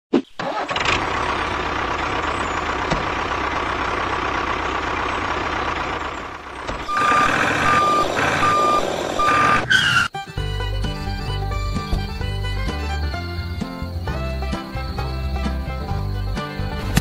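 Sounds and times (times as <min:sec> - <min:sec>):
vehicle engine running: 0:00.6 - 0:09.7
reversing alarm beeping: 0:06.8 - 0:10.1.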